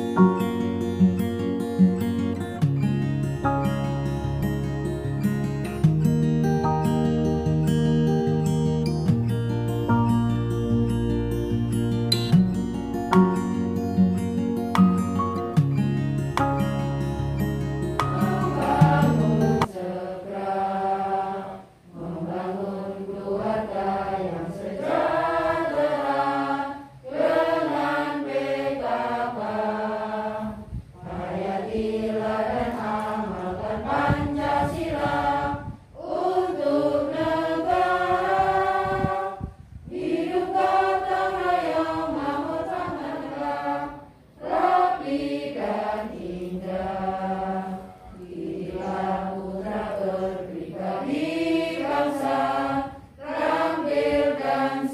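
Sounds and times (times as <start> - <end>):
women singing in unison: 18.0 - 54.9.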